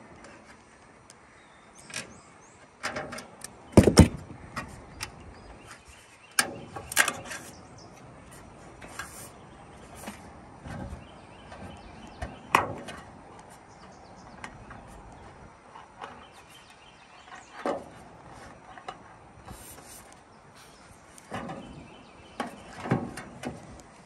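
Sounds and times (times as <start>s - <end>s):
sheet metal snaps and knocks: 2.8s - 4.8s.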